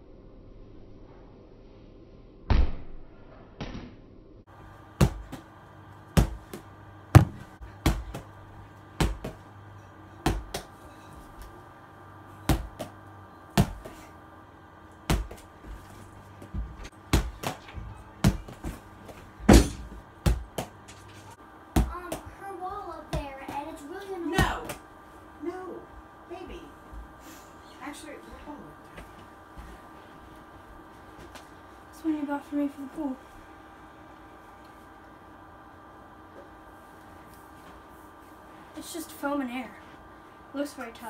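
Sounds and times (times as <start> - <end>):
ball knocking against wall: 7.2 - 8.2.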